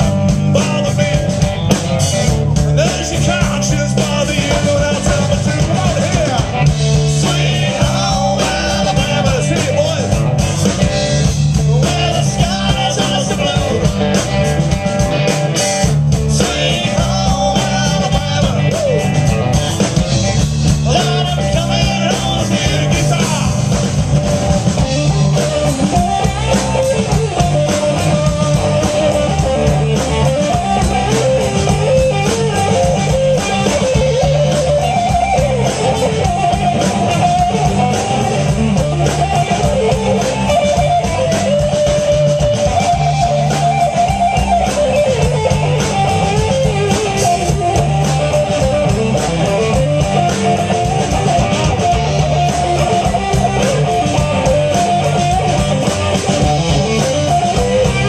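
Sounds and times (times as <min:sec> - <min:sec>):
live rock band playing: 0:00.0 - 0:58.0.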